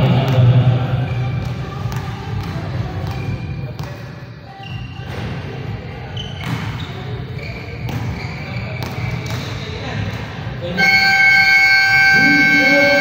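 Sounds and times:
low hum of hall: 0.0s - 13.0s
basketball bouncing on court: 0.1s - 4.0s, 4.7s - 10.3s.

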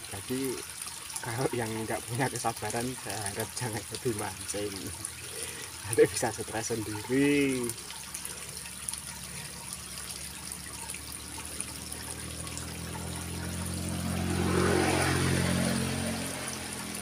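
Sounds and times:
water running in ditch: 0.0s - 17.0s
passing vehicle engine hum: 7.6s - 17.0s.

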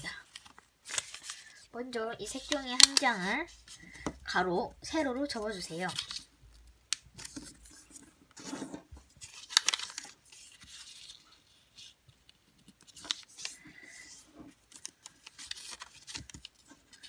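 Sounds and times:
paper folding rustles: 0.0s - 1.7s, 2.3s - 4.0s, 7.1s - 17.0s.

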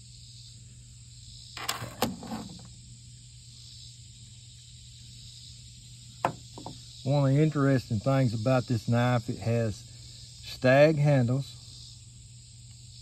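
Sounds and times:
small ticks: 12.6s - 13.0s.

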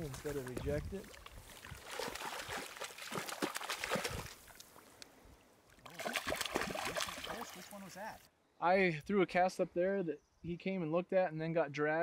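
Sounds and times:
fish splashing at surface: 1.2s - 4.8s, 5.8s - 7.7s.

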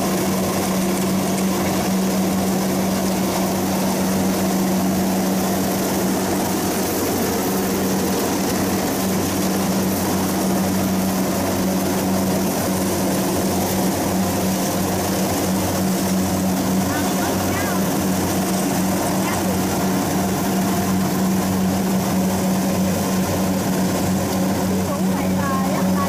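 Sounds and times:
combine harvester droning: 0.0s - 26.0s.

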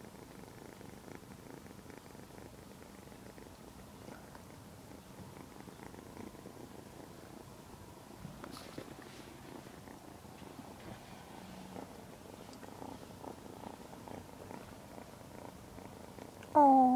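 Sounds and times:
kitten purring: 0.0s - 16.9s
rustle of fur or cloth: 8.2s - 14.9s.

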